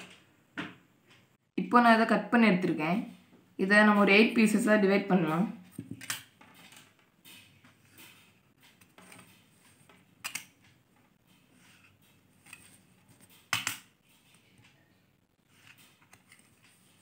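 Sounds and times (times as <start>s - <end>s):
ruler and marker scraping tin: 11.5s - 13.3s.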